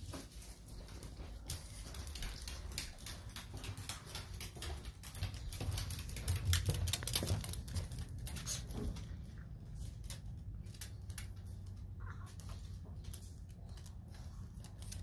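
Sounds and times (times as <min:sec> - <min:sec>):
footsteps on tiled floor: 0:00.0 - 0:10.8
dog claws clicking on tiles: 0:00.2 - 0:15.0.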